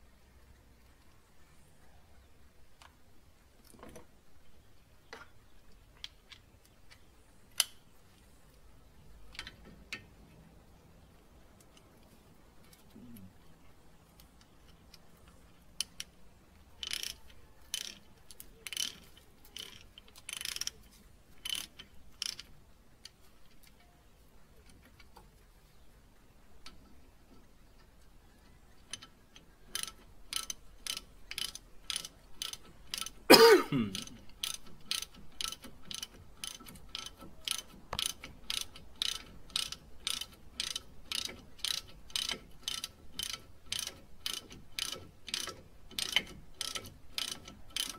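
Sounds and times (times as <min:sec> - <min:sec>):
ratchet wrench clicking: 0:16.8 - 0:20.8, 0:21.4 - 0:23.2, 0:29.7 - 0:33.2, 0:34.0 - 0:47.9.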